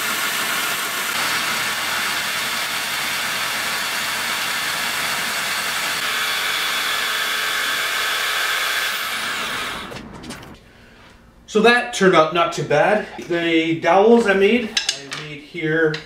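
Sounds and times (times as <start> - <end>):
jigsaw running: 0.0 - 10.0
cordless drill spinning: 0.0 - 10.6.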